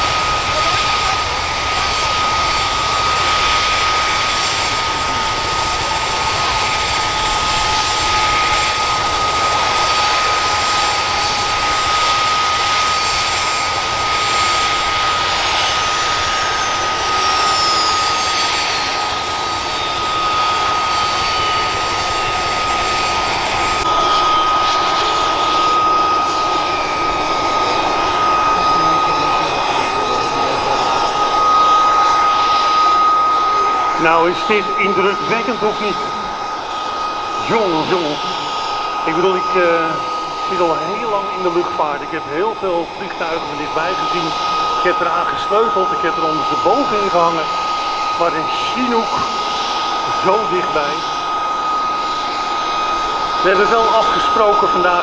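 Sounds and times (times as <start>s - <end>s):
falling whine: 0.0s - 55.0s
helicopter turbine whine: 0.0s - 55.0s
broad rushing noise: 13.6s - 55.0s.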